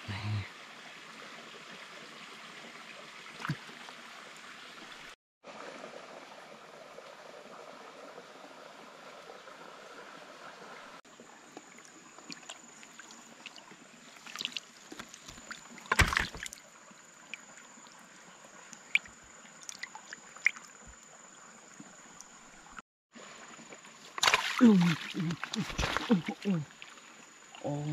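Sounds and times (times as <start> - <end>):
water sloshing and splashing: 3.3 - 4.1, 11.2 - 16.7, 18.6 - 21.1, 21.7 - 27.7.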